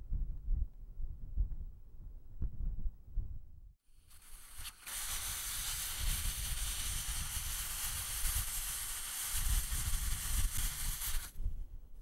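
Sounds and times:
air hissing out of tyre: 0:03.9 - 0:11.4.

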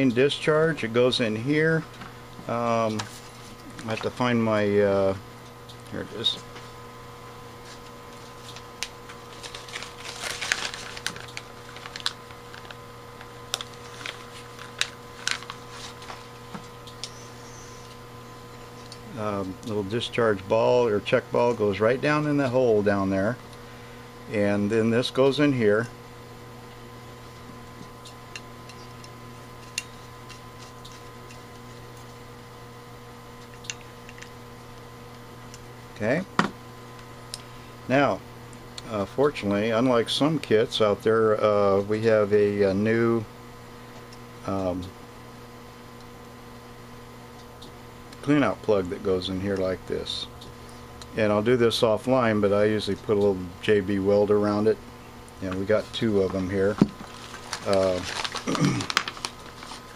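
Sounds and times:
electrical hum: 0:00.0 - 0:59.9
plastic bag crinkling: 0:08.2 - 0:16.5, 0:55.8 - 0:59.9.

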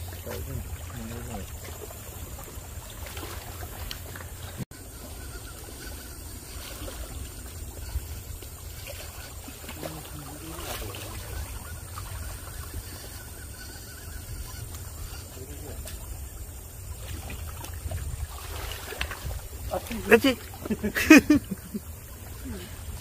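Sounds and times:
water lapping against rocks: 0:00.0 - 0:23.0
wind rumbling on microphone: 0:05.6 - 0:10.0, 0:10.7 - 0:20.9.

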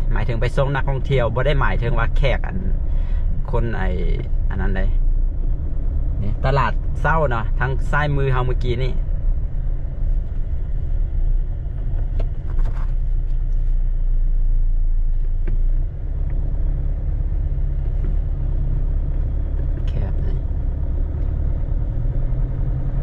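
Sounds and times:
car engine and road rumble: 0:00.0 - 0:23.0.

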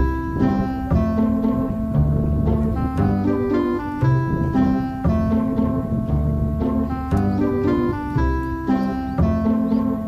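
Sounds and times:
instrumental background music: 0:00.0 - 0:10.0.

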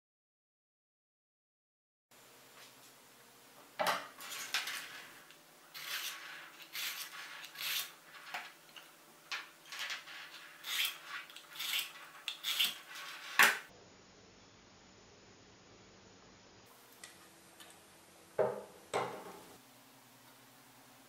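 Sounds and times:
sharpener scraping knife edge: 0:05.8 - 0:08.0, 0:09.7 - 0:13.7.

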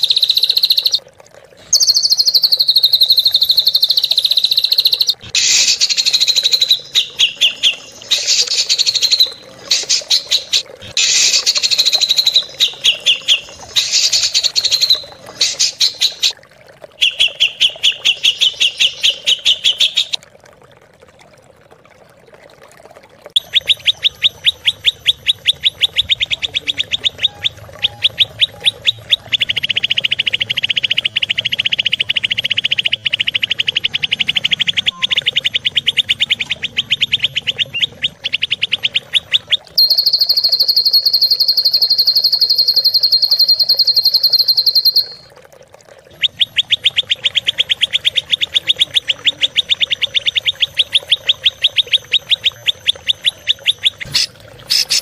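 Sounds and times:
songbird fast trill: 0:00.0 - 0:01.0, 0:01.7 - 0:16.3, 0:34.2 - 0:45.3, 0:47.2 - 0:55.0
songbird harsh rapid chips: 0:01.7 - 0:16.3, 0:53.7 - 0:55.0.

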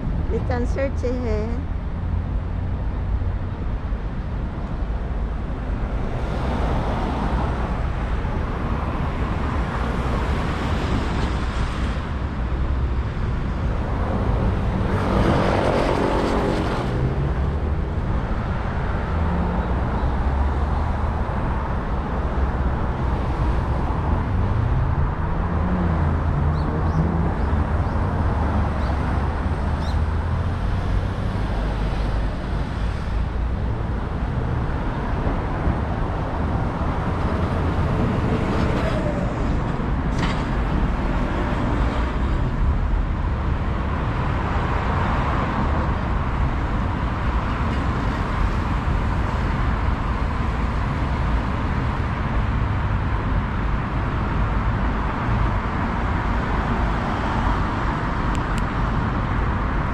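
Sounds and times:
street traffic rumble: 0:00.0 - 0:59.9
vehicle passing: 0:13.8 - 0:21.0.

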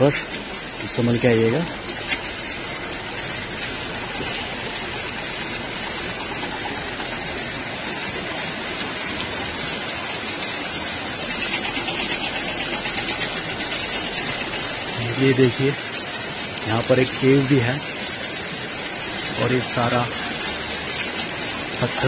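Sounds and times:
water dripping onto wet rock: 0:00.0 - 0:22.0.

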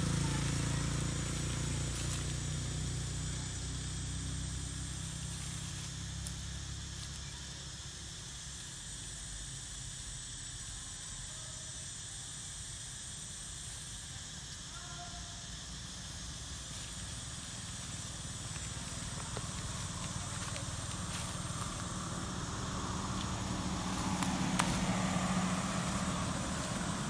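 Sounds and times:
steady high hiss: 0:00.0 - 0:27.0
low hum: 0:16.0 - 0:27.0.

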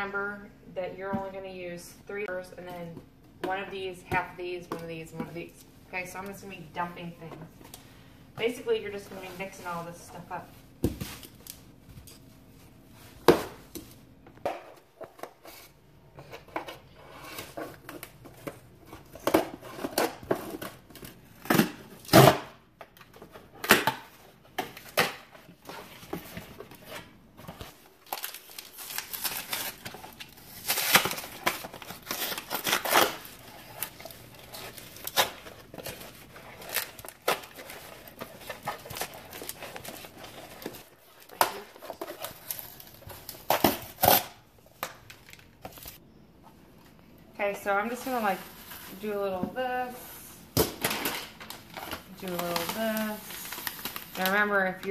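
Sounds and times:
plastic bag crinkling: 0:51.0 - 0:54.9.

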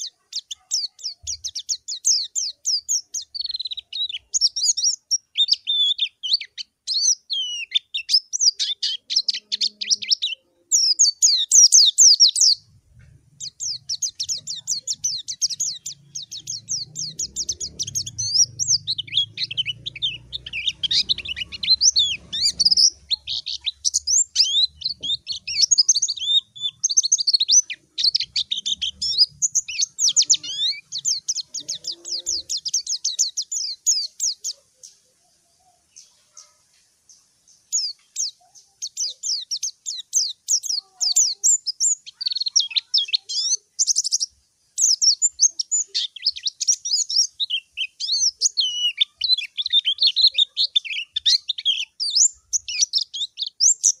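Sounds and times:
bird twittering song: 0:00.0 - 0:54.0.

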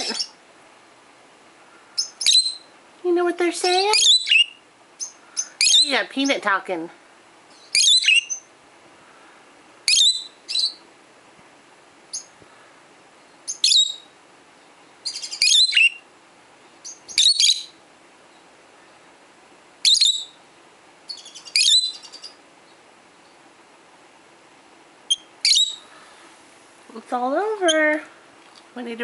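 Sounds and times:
parrots chirping shrilly: 0:02.0 - 0:02.7, 0:03.9 - 0:06.0, 0:07.6 - 0:08.5, 0:09.9 - 0:10.8, 0:13.5 - 0:14.1, 0:15.0 - 0:16.0, 0:16.8 - 0:17.7, 0:19.8 - 0:20.4, 0:21.1 - 0:22.4, 0:25.1 - 0:25.9.

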